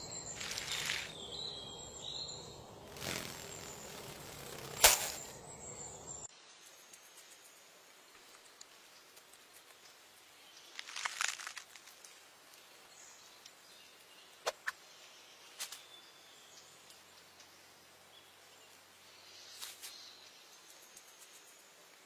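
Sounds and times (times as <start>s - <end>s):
rustling crackle: 0.3s - 1.2s, 2.8s - 5.4s, 10.6s - 12.2s.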